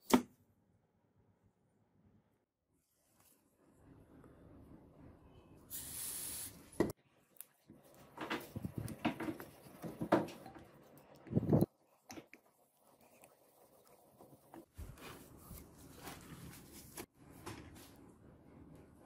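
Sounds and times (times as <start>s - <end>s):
aerosol spray hiss: 5.7s - 6.8s.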